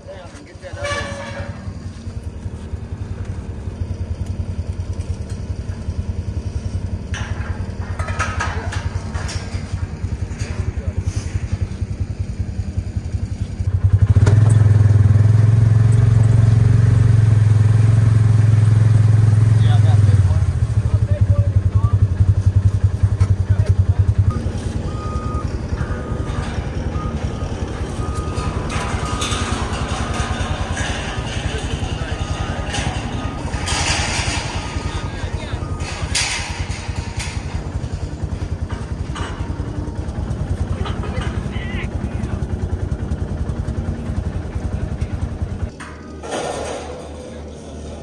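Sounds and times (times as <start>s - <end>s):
diesel engine idling: 0.0s - 7.9s, 9.0s - 46.2s
steel fence panels clanking: 0.0s - 48.0s.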